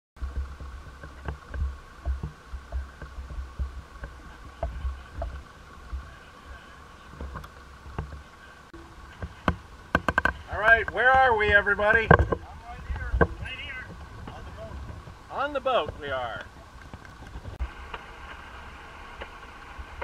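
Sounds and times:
footsteps on wooden dock: 0.2s - 17.6s
faint hum: 0.2s - 20.0s
light clicks and knocks: 7.1s - 15.2s.

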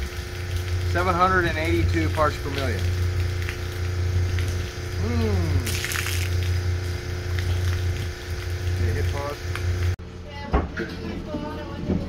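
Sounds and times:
water pouring: 0.0s - 9.4s
pump humming: 0.0s - 10.4s
water splash: 5.6s - 6.6s.

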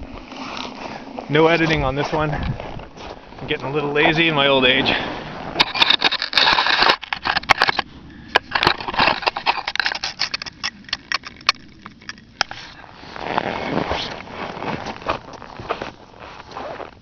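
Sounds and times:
footsteps crunching in snow: 12.5s - 17.0s.

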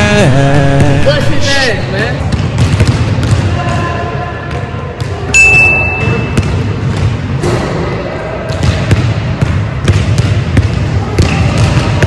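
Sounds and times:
steady high-pitched tone: 5.4s - 6.4s
basketball bouncing on hardwood: 8.6s - 12.0s.

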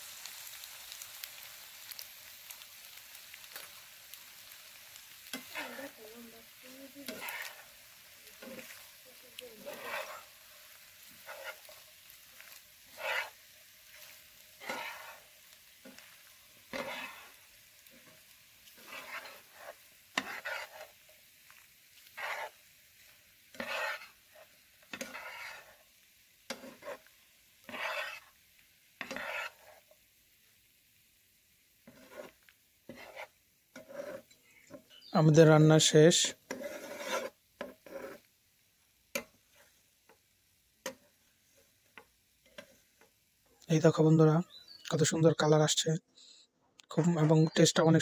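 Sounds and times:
pasta sizzling: 0.0s - 45.9s, 46.9s - 48.0s
spatula scraping frying pan: 1.3s - 2.6s, 3.4s - 30.0s, 31.7s - 43.6s.

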